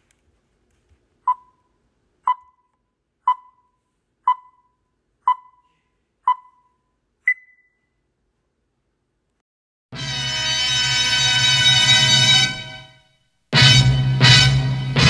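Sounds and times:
countdown beeps: 1.3s - 1.6s, 2.3s - 2.7s, 3.3s - 3.7s, 4.3s - 4.7s, 5.3s - 5.7s, 6.3s - 7.8s.

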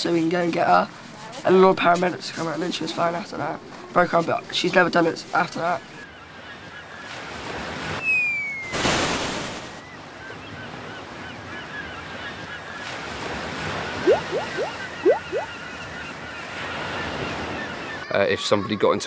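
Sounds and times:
waves: 0.0s - 19.0s
faint bird calls: 13.9s - 18.1s
quick rising blips: 14.0s - 15.5s
cartoon splash: 14.1s - 15.5s.

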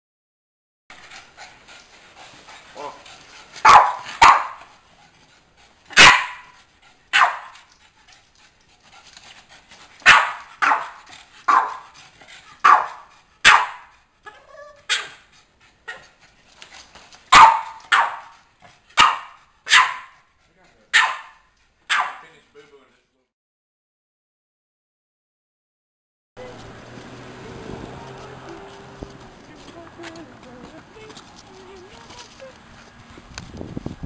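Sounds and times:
dog barking: 3.6s - 4.7s, 5.9s - 7.6s, 10.0s - 11.9s, 12.6s - 13.9s, 17.3s - 18.4s, 19.0s - 20.2s, 20.9s - 22.3s.

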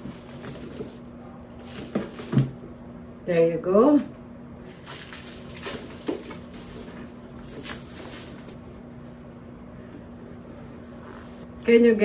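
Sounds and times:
steady low hum: 0.0s - 12.0s
plastic shrink wrap crinkling: 4.8s - 6.6s.

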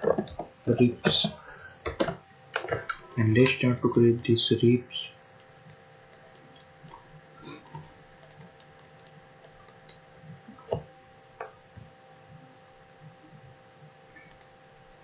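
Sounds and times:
faint steady hum: 0.0s - 15.0s
computer mouse clicks: 5.4s - 10.0s, 14.2s - 14.5s.

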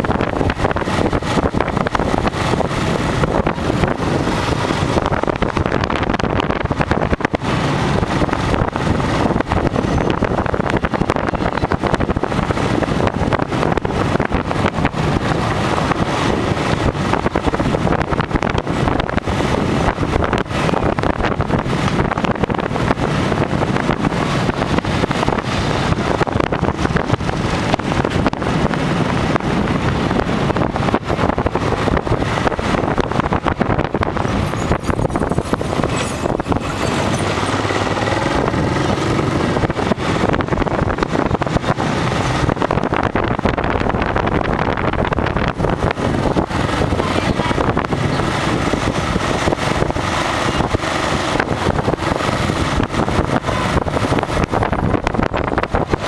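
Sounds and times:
motorbike running: 0.0s - 56.0s
passing street traffic: 0.0s - 56.0s
wind buffeting microphone: 0.0s - 56.0s.

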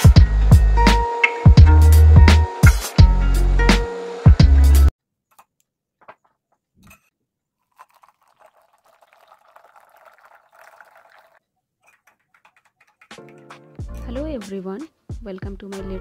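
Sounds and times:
water trickling into a mug: 7.6s - 12.2s.

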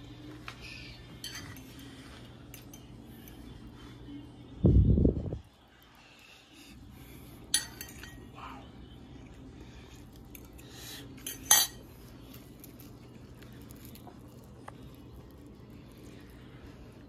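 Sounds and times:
steady low hum: 0.0s - 17.0s
metal spoon clinking: 1.2s - 1.9s, 2.5s - 3.4s, 7.4s - 8.4s, 11.2s - 12.7s.

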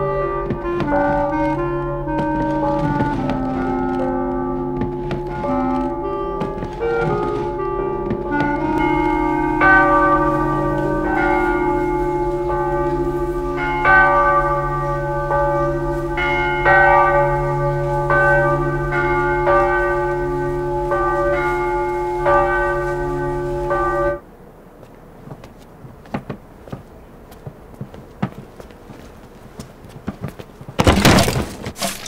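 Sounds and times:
church tower bells ringing: 0.0s - 24.2s.

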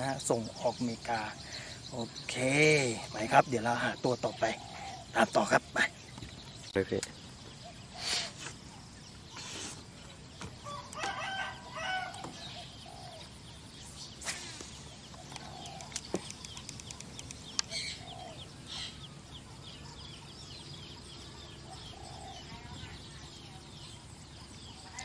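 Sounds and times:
small birds chirping: 0.0s - 25.0s
rooster crowing: 10.6s - 12.4s
sharp clicks: 14.3s - 17.7s.

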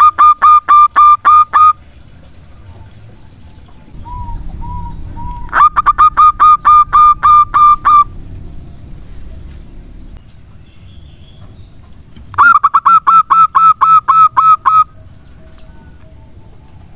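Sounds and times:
dove cooing: 3.9s - 10.0s, 12.4s - 16.9s.

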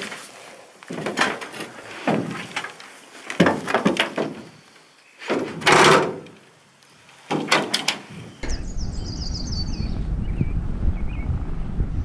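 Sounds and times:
canoe hull scraping: 0.0s - 4.6s
wind rumbling on microphone: 7.6s - 12.0s.

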